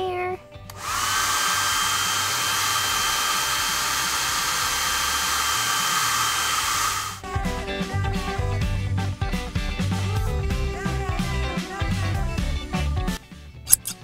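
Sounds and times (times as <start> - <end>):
hair dryer blowing with whine: 0.7 - 7.2.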